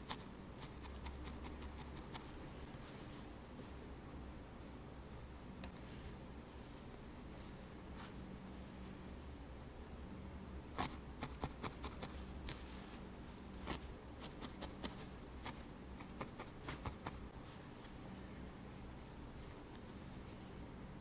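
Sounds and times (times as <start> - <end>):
felting needle stabbing wool: 10.7 - 12.6, 13.6 - 17.2.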